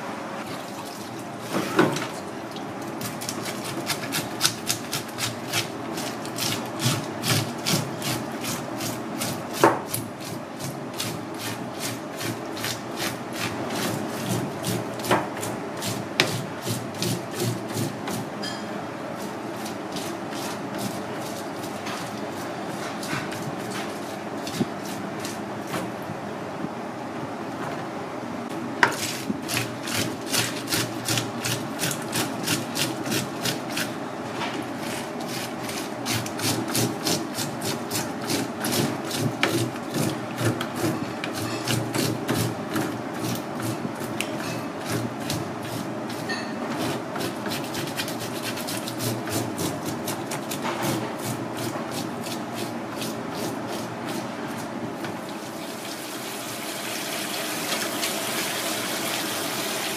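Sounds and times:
tap water running: 0:55.2 - 0:59.9.

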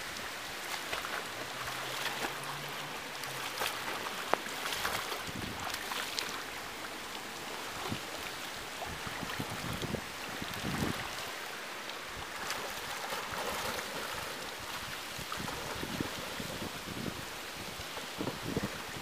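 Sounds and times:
water splashing from swimming: 0:00.0 - 0:19.0
wind on microphone: 0:04.8 - 0:06.0, 0:07.7 - 0:11.4, 0:13.2 - 0:19.0.

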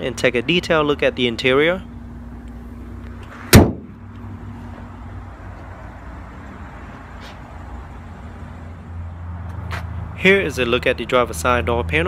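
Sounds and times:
car hood slamming shut: 0:03.5 - 0:04.0.

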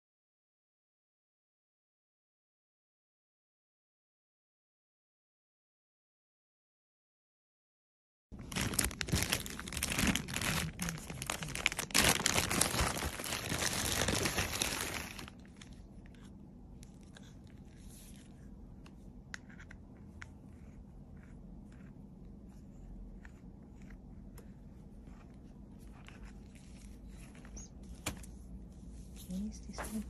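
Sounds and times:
plastic packaging crinkling and tearing: 0:08.4 - 0:15.8.

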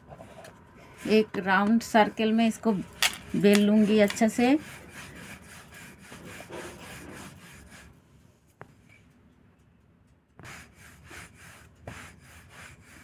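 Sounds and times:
rolling pin rolling dough on wood: 0:01.0 - 0:07.9, 0:10.4 - 0:13.0.

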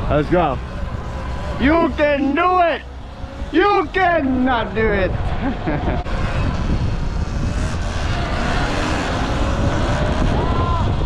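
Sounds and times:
road and traffic rumble: 0:00.0 - 0:11.0
wind buffeting microphone: 0:02.8 - 0:11.0.

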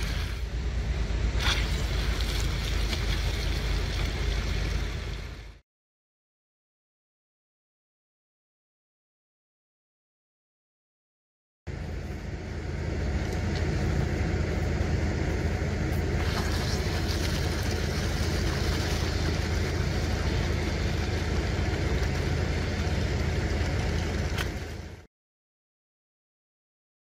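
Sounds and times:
engine rumbling: 0:00.0 - 0:05.6, 0:11.7 - 0:25.1
water hissing through lance: 0:16.2 - 0:20.5.

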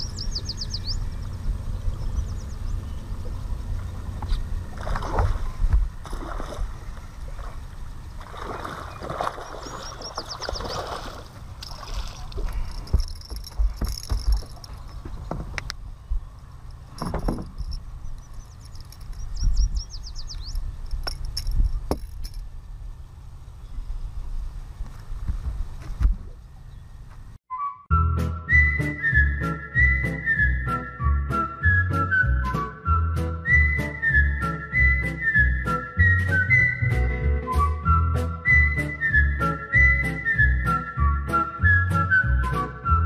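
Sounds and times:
bird trilling: 0:00.0 - 0:04.7, 0:08.1 - 0:11.2, 0:14.4 - 0:21.2
wind buffeting microphone: 0:00.0 - 0:22.9
fish splashing at water surface: 0:04.7 - 0:13.6.

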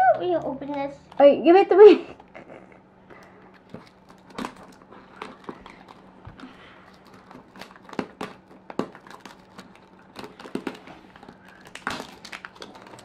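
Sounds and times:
plastic wrapper crinkling: 0:03.1 - 0:13.0.

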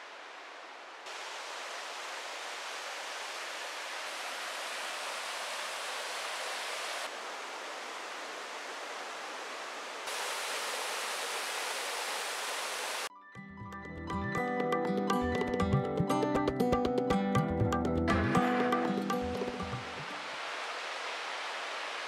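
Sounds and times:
waterfall rushing: 0:00.0 - 0:13.1, 0:18.1 - 0:22.0.

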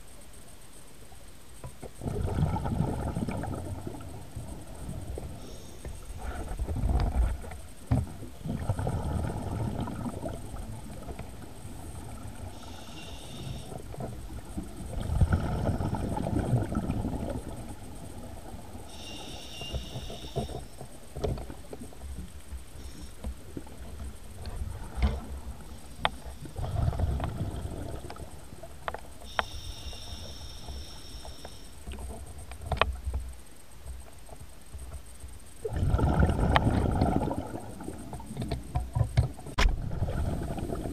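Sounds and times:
exhaled air bubbling: 0:02.0 - 0:20.8, 0:22.6 - 0:32.3, 0:35.6 - 0:38.7, 0:39.6 - 0:40.9
regulator inhale hiss: 0:05.3 - 0:06.4, 0:12.4 - 0:13.9, 0:18.7 - 0:20.8, 0:22.7 - 0:23.3, 0:29.2 - 0:32.0
small clicks and ticks: 0:09.8 - 0:35.6, 0:36.5 - 0:39.7.

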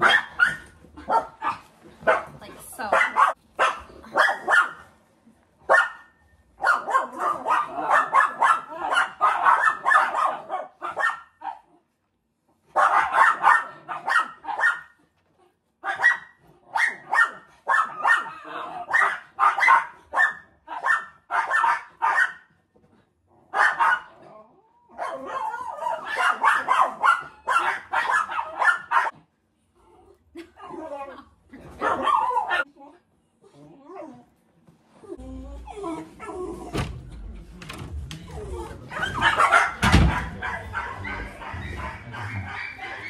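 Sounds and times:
dog barking sharply: 0:00.0 - 0:04.8, 0:05.7 - 0:11.6, 0:12.8 - 0:14.9, 0:15.8 - 0:22.5, 0:23.6 - 0:24.1, 0:25.0 - 0:29.1, 0:31.8 - 0:32.6, 0:39.0 - 0:43.0.

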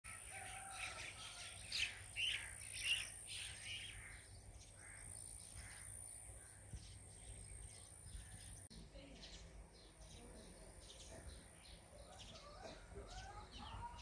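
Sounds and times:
birds calling and chirping: 0:00.1 - 0:14.0.

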